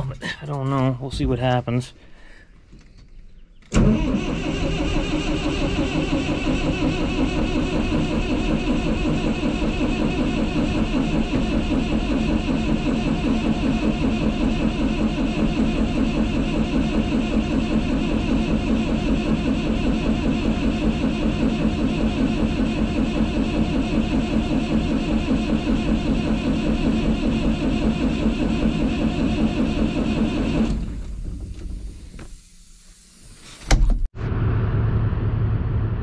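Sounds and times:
diesel engine starter cranking: 0:03.6 - 0:32.4
diesel engine running loudly: 0:03.8 - 0:31.1.

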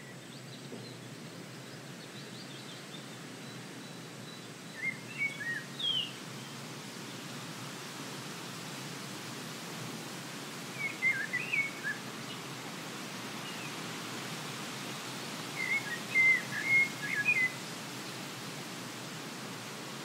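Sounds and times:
breeze hiss: 0:03.6 - 0:20.0
songbird warbling: 0:15.6 - 0:17.6.

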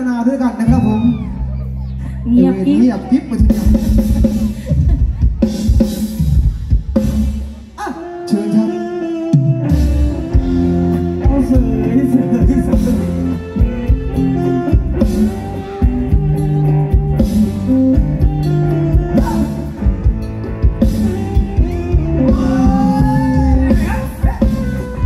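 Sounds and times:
live band dance music: 0:00.0 - 0:25.0
drum beat: 0:03.4 - 0:07.6, 0:10.0 - 0:25.0
person singing: 0:07.8 - 0:17.6, 0:18.2 - 0:19.8, 0:21.1 - 0:25.0.

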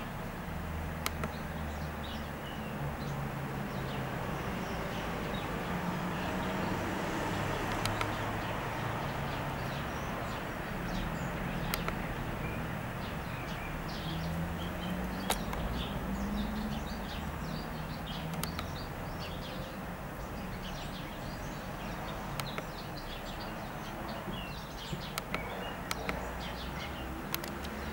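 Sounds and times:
small birds chirping: 0:00.0 - 0:27.9
sharp clicks: 0:00.9 - 0:01.5, 0:07.6 - 0:08.3, 0:11.4 - 0:12.4, 0:14.0 - 0:17.4, 0:18.1 - 0:19.0, 0:22.1 - 0:23.3, 0:24.3 - 0:26.4, 0:27.1 - 0:27.9.

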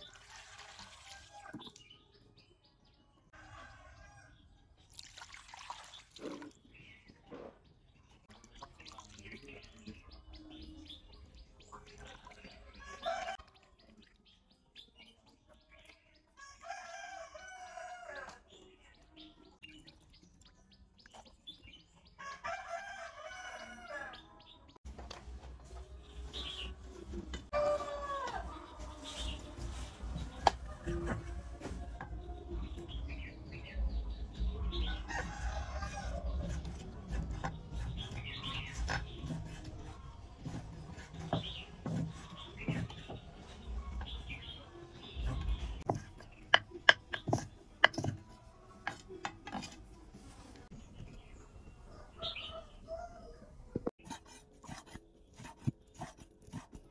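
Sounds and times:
rooster crowing: 0:27.5 - 0:28.6.

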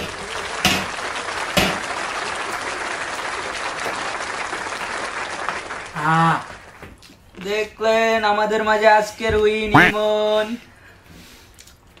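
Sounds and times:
crowd clapping: 0:00.0 - 0:06.8
short vocal sound: 0:09.8 - 0:10.0.

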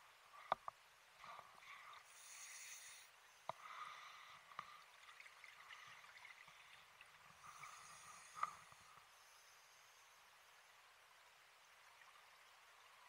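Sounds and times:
diver breathing through regulator: 0:02.1 - 0:04.8, 0:07.4 - 0:09.0.

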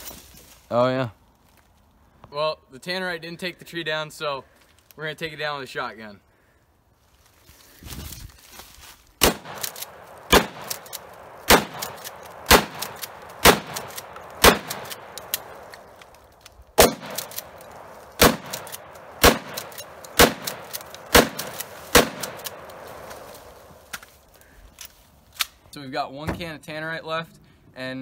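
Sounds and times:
loud shotgun blasts: 0:09.2 - 0:15.9, 0:16.8 - 0:23.5.

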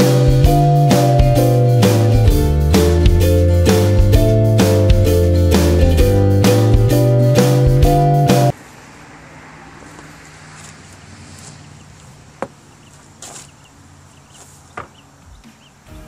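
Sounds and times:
soft rustle: 0:09.8 - 0:14.9.

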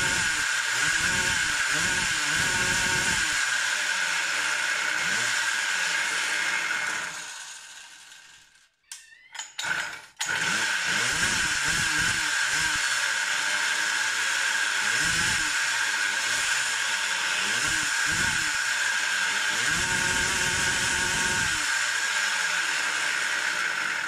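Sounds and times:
engine sputters: 0:00.0 - 0:03.4, 0:10.9 - 0:12.9, 0:14.9 - 0:15.6, 0:17.4 - 0:18.6
two-stroke engine revving: 0:00.0 - 0:08.0, 0:09.6 - 0:24.0.

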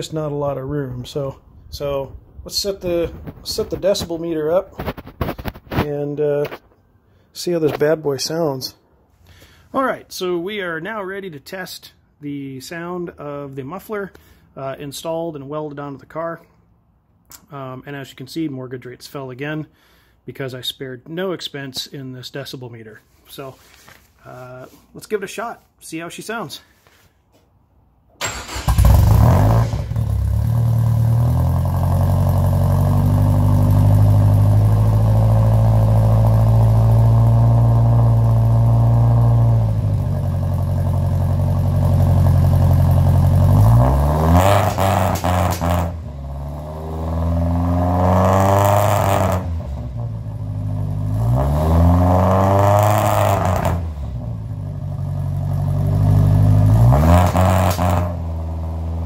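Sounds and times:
car engine idling and revving: 0:28.4 - 0:59.0.

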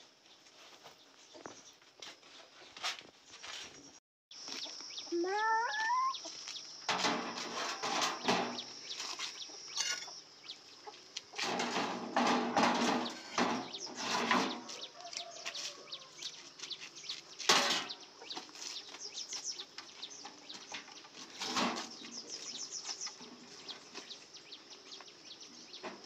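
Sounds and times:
chicken call: 0:05.2 - 0:06.2
scraping and rustling: 0:06.9 - 0:10.1, 0:11.3 - 0:24.3.

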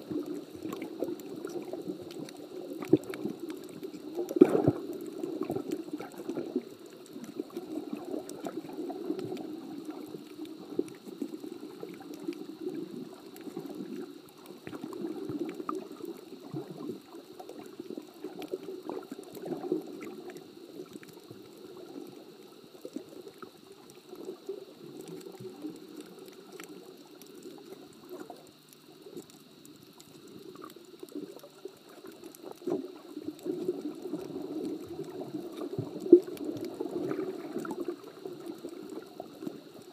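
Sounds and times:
muffled underwater water rush: 0:00.0 - 0:39.9
small clicks: 0:17.0 - 0:39.9.

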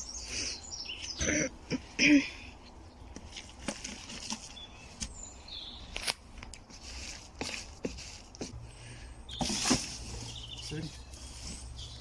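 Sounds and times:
plastic tub knocking and scraping: 0:09.3 - 0:10.3.

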